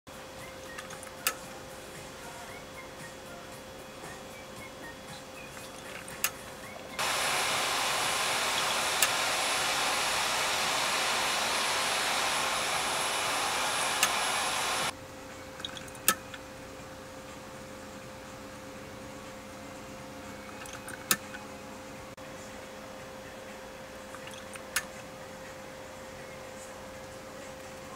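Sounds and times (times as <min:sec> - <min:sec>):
chart recorder motor whirring: 0:07.0 - 0:14.9.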